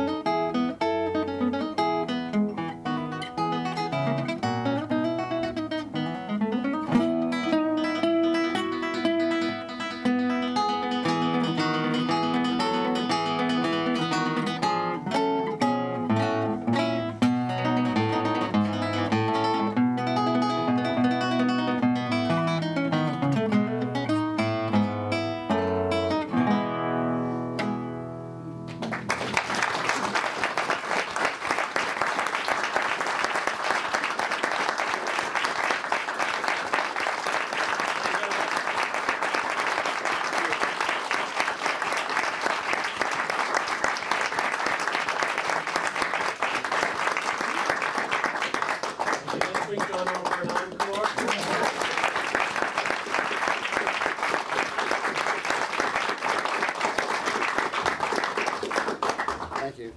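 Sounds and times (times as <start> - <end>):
classical guitar solo: 0.0 - 29.4
audience applause: 28.7 - 59.9.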